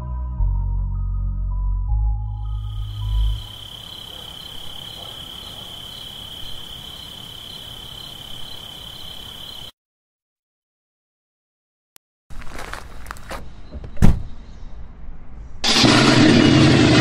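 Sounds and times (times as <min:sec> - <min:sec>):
crickets chirping: 0:02.4 - 0:09.7.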